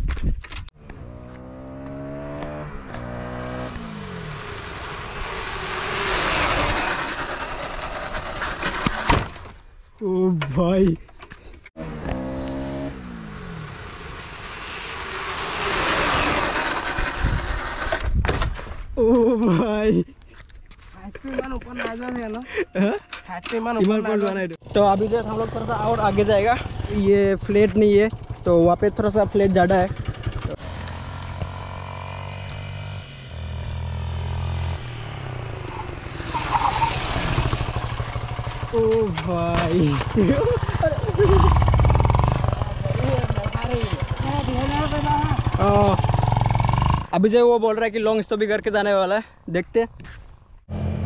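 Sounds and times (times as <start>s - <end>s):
motorcycle rushing past: 0.8s - 9.2s, 11.8s - 18.2s, 24.6s - 47.2s, 50.7s - 51.0s
motorcycle braking hard: 0.9s - 9.6s, 11.8s - 18.8s, 29.9s - 47.1s
motorcycle engine idling: 25.0s - 30.6s, 37.0s - 47.1s.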